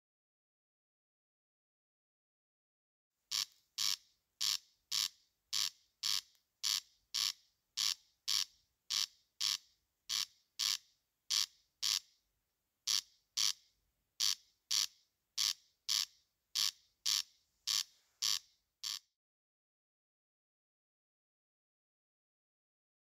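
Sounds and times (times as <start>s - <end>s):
corncrake rasping call: 3.3s - 12.0s, 14.2s - 19.0s.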